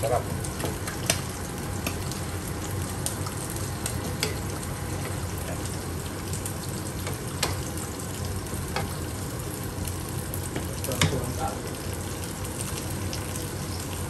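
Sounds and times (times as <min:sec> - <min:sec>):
spinach sizzling in a frying pan: 0:00.0 - 0:14.0.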